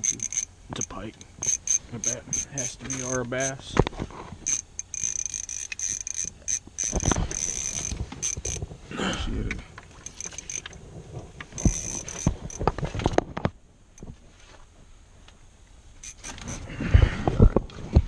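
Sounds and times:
fishing reel drag clicking: 0:00.0 - 0:03.6, 0:04.4 - 0:08.6, 0:10.0 - 0:10.8, 0:11.6 - 0:12.6, 0:16.0 - 0:16.7.

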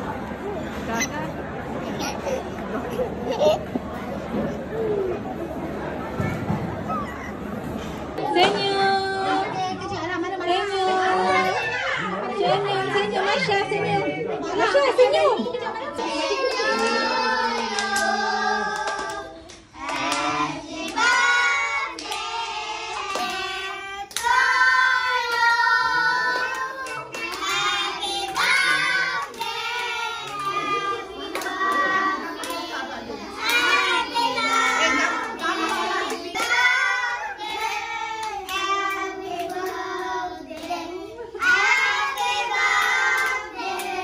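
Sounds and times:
children singing: 0:16.0 - 0:19.3, 0:19.9 - 0:32.6, 0:33.4 - 0:44.0
hands clapping: 0:24.1 - 0:24.4, 0:26.3 - 0:27.6, 0:30.2 - 0:32.6.

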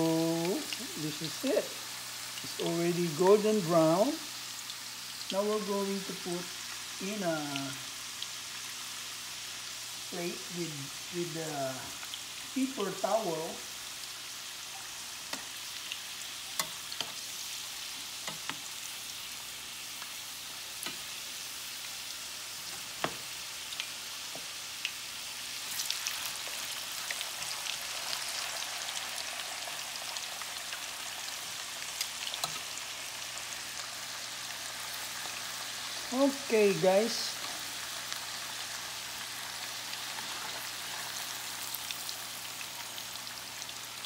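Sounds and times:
food deep-frying in oil: 0:00.0 - 0:44.0.

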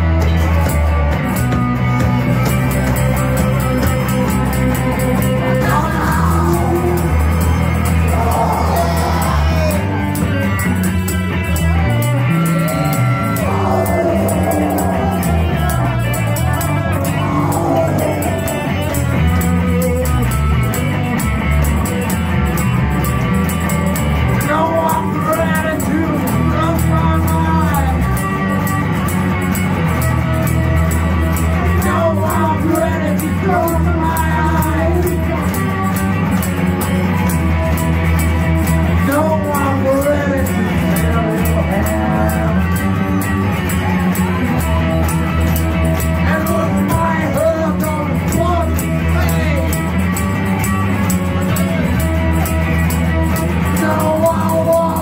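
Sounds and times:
bass guitar: 0:00.0 - 0:55.0
electric guitar: 0:00.0 - 0:55.0
man singing: 0:05.4 - 0:10.0, 0:12.6 - 0:20.4, 0:24.4 - 0:28.3, 0:31.6 - 0:35.6, 0:39.0 - 0:43.2, 0:46.2 - 0:49.8, 0:53.6 - 0:55.0.

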